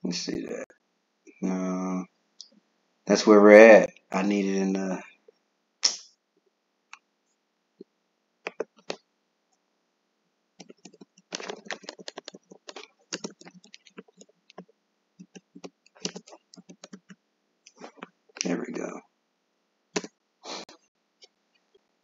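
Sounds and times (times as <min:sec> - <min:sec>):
keyboard typing clicks: 0:08.5 - 0:09.0, 0:10.6 - 0:14.6, 0:15.2 - 0:18.5.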